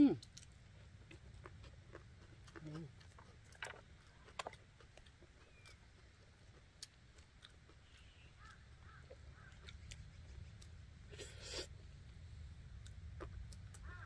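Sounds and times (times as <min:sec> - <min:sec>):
faint chewing: 0:00.0 - 0:14.0.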